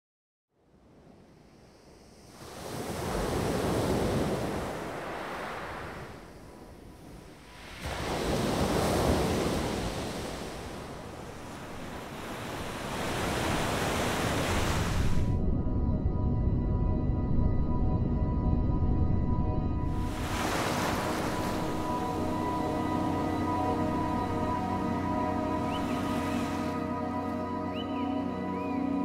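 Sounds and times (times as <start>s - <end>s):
sea waves surging: 1.5s - 15.4s, 19.9s - 28.6s.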